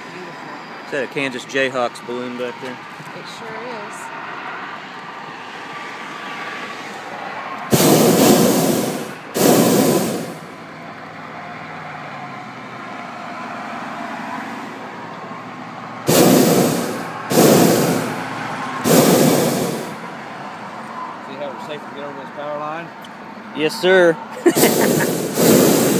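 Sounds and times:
propane burner roaring blasts: 0:07.0 - 0:10.8, 0:16.0 - 0:20.3, 0:24.4 - 0:25.9.

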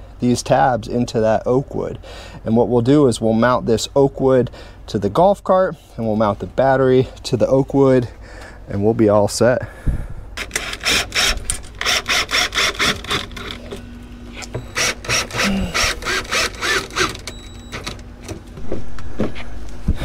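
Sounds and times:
cordless drill driving screws: 0:10.4 - 0:13.7, 0:14.6 - 0:17.9.

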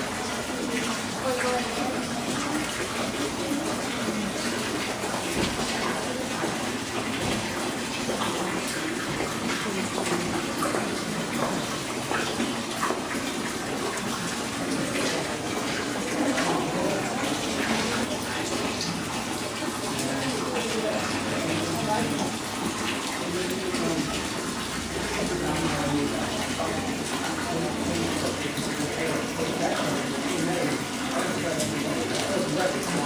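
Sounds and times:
running water rushing: 0:00.0 - 0:33.0
faint voices: 0:13.4 - 0:33.0.

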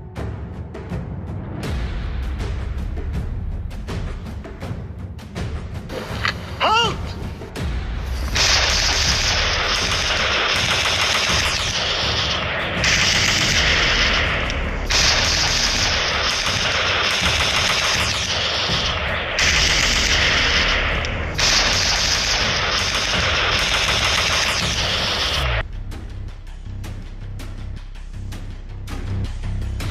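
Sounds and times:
rapid machine-gun fire: 0:08.4 - 0:25.6.

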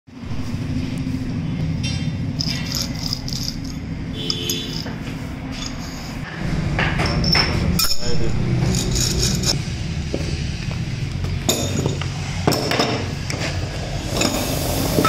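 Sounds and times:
steady low hum: 0:00.1 - 0:14.2
bearing rollers rattling: 0:01.7 - 0:09.6.

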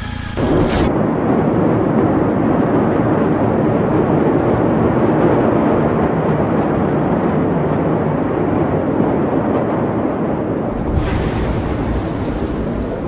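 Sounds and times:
loud rushing noise: 0:10.6 - 0:13.0.

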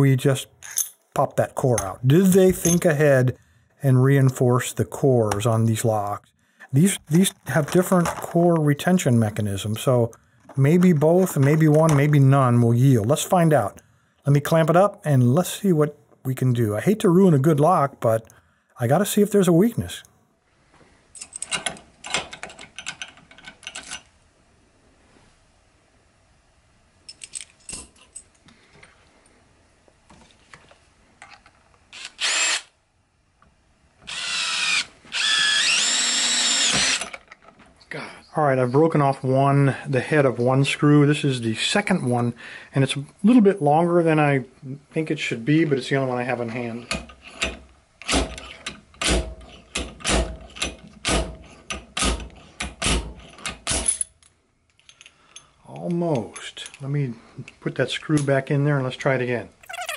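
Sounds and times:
cordless drill driving screw into metal: 0:32.0 - 0:32.7, 0:34.1 - 0:37.3.

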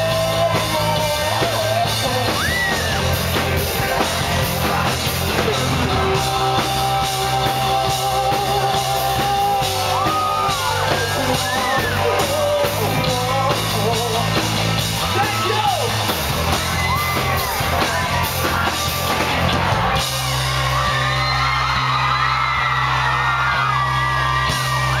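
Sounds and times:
person singing: 0:00.0 - 0:14.6
crowd yelling and whooping: 0:00.0 - 0:25.0
drums: 0:00.0 - 0:25.0
live rock band playing: 0:00.0 - 0:25.0.

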